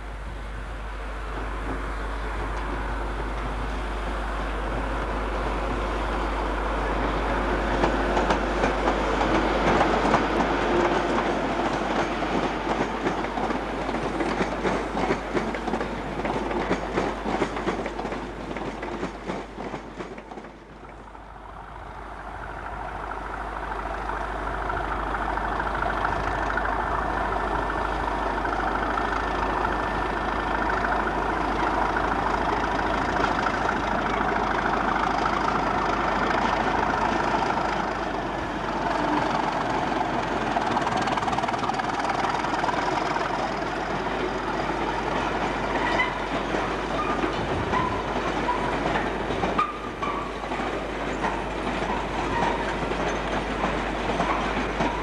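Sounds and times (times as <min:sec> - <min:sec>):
diesel locomotive engine whining: 0:00.0 - 0:55.0
train wheels clattering over rail joints: 0:07.5 - 0:21.1, 0:24.7 - 0:55.0.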